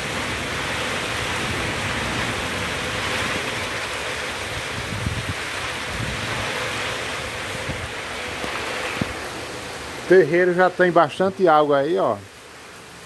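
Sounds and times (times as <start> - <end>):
wind buffeting microphone: 0.0 - 10.1
gusting wind: 0.0 - 11.1
heavy downpour: 0.0 - 13.0.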